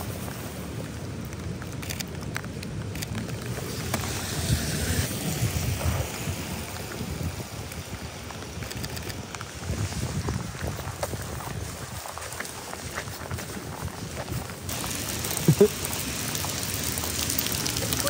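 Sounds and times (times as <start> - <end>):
wind noise on microphone: 0.0 - 15.6
rain: 0.0 - 18.0
traffic: 0.0 - 18.0
scattered clicks: 8.6 - 9.4.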